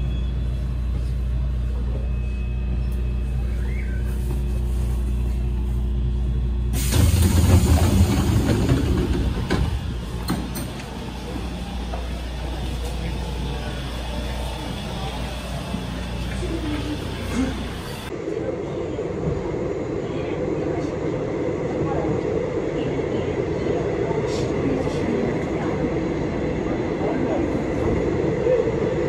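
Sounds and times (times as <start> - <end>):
subway train electric hum: 0.0 - 29.0
subway train rushing hiss: 6.7 - 18.1.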